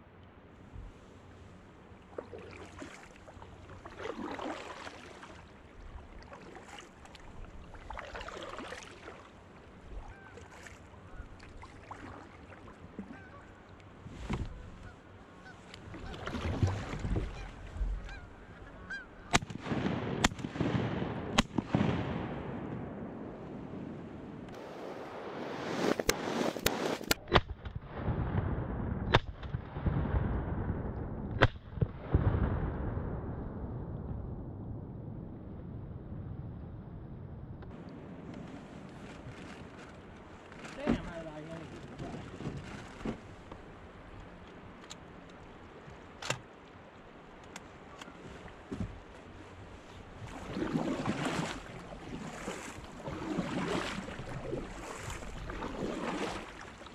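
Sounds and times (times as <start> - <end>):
river water flowing: 0.5 - 14.1, 15.0 - 19.3, 24.5 - 27.1, 37.7 - 56.9
water drips: 2.1 - 9.3
shotgun blasts: 19.3 - 22.7.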